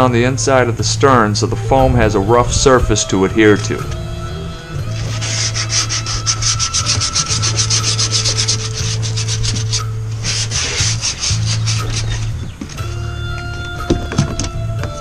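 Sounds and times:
hand sanding plastic: 0:04.9 - 0:12.7.

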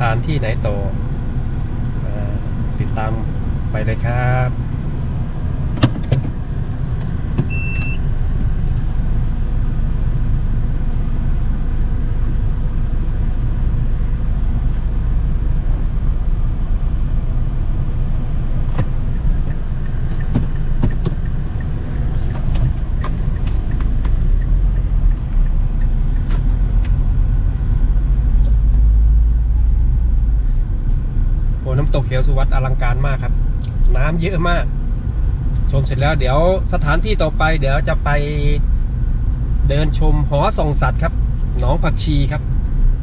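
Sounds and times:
car road rumble: 0:00.0 - 0:43.0
short high beep: 0:07.5 - 0:08.0.

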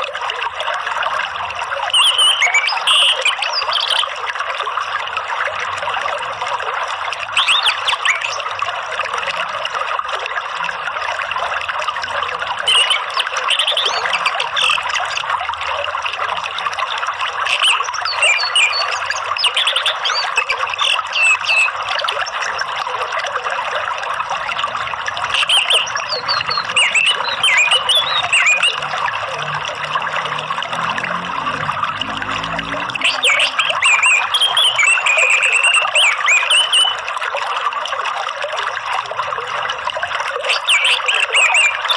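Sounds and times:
running water trickling: 0:00.0 - 0:41.9
bird chirping: 0:02.0 - 0:04.0, 0:07.4 - 0:08.4, 0:12.7 - 0:14.8, 0:17.5 - 0:21.8, 0:25.4 - 0:28.9, 0:33.0 - 0:37.0, 0:40.5 - 0:41.9.

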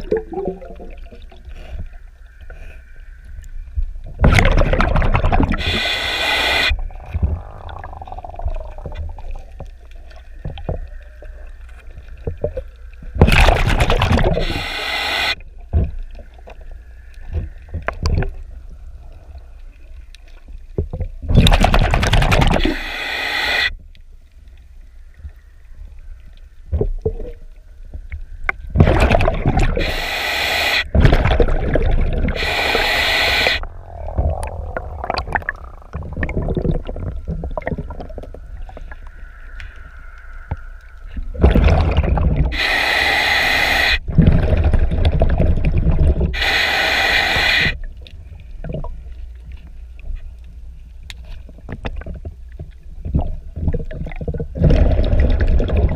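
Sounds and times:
regulator bubbles on exhale: 0:00.0 - 0:01.9, 0:04.1 - 0:09.6, 0:12.2 - 0:16.4, 0:21.2 - 0:23.7, 0:28.7 - 0:47.9, 0:53.0 - 0:55.9
hissing inhale through regulator: 0:05.4 - 0:08.9, 0:14.2 - 0:15.4, 0:22.5 - 0:23.7, 0:29.6 - 0:31.0, 0:32.1 - 0:35.3, 0:42.4 - 0:44.1, 0:46.3 - 0:47.9.

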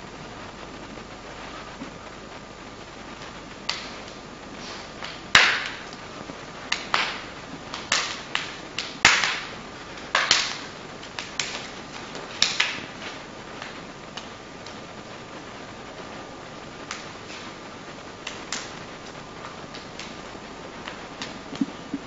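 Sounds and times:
steady hiss: 0:00.0 - 0:22.0
hands slapping forearms: 0:03.2 - 0:14.9, 0:16.8 - 0:17.6, 0:18.2 - 0:22.0.

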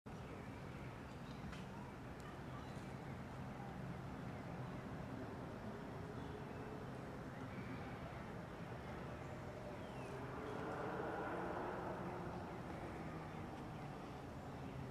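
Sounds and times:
outdoor background rumble: 0:01.3 - 0:14.9.

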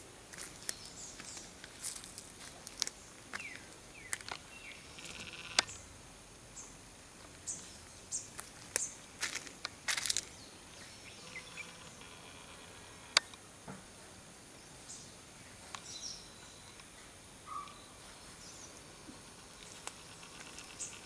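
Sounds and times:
sharp clicks: 0:04.2 - 0:05.8, 0:11.3 - 0:13.4
bird chirps and calls: 0:10.3 - 0:12.2, 0:15.8 - 0:18.8
buzzy trill: 0:11.1 - 0:13.2.

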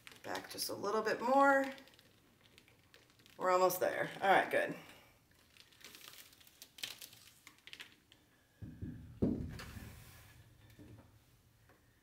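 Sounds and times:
faint crackling handling noises: 0:00.0 - 0:08.4
canvas knocking on table: 0:08.6 - 0:09.8.

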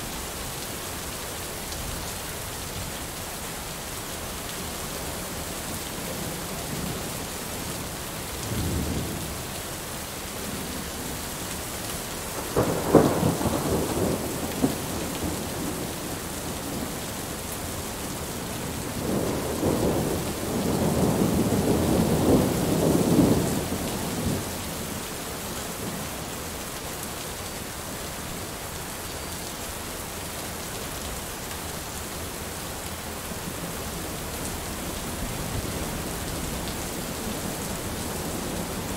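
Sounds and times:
heavy rain falling: 0:00.0 - 0:38.9
thunder rumbling and cracking: 0:12.4 - 0:17.0.

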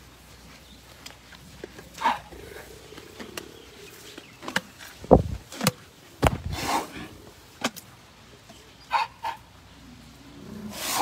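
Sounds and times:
elephant short noises: 0:10.6 - 0:11.0.

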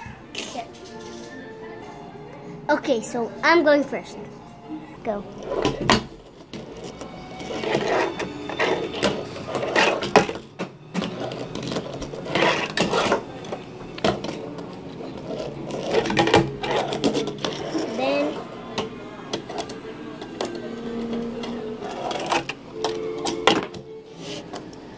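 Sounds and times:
fingerboard wheels rattling: 0:05.4 - 0:18.4.

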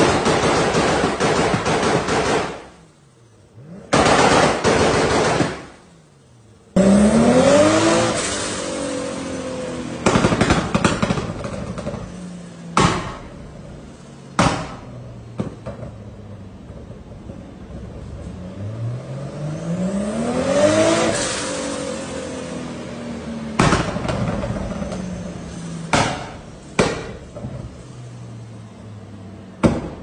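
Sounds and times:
exhaust crackling and popping: 0:00.0 - 0:02.8, 0:03.6 - 0:05.9, 0:09.8 - 0:18.6, 0:23.5 - 0:28.8
sharp exhaust bangs: 0:00.0 - 0:06.1, 0:06.7 - 0:30.0
car engine revving: 0:00.0 - 0:30.0.

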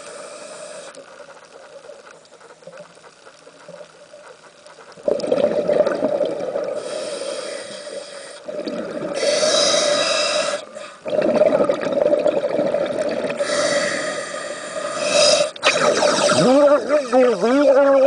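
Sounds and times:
hissing regulator inhalation: 0:00.0 - 0:01.0, 0:06.6 - 0:11.5, 0:13.2 - 0:17.8
bubbling regulator exhalation: 0:05.0 - 0:07.1, 0:08.4 - 0:18.0.

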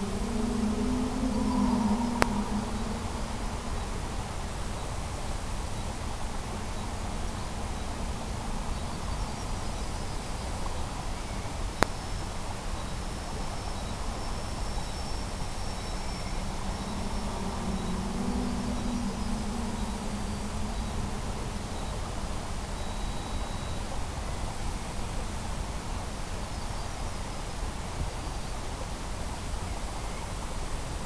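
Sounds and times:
constant hiss: 0:00.0 - 0:31.0
model aircraft motor droning: 0:15.5 - 0:23.7.

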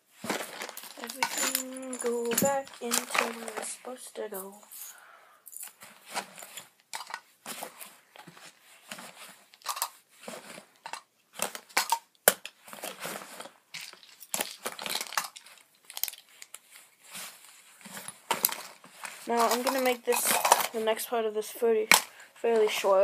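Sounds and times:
fabric backpack rustling: 0:00.0 - 0:05.0, 0:10.1 - 0:10.8, 0:16.6 - 0:21.0
scrapes and knocks: 0:00.2 - 0:04.9, 0:17.1 - 0:21.1.

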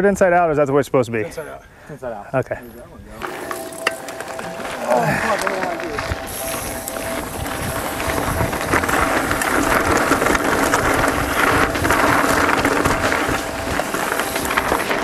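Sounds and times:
bike rattling over bumps: 0:03.2 - 0:15.0
tyres crunching on gravel: 0:03.2 - 0:15.0
wind buffeting microphone: 0:04.6 - 0:15.0.

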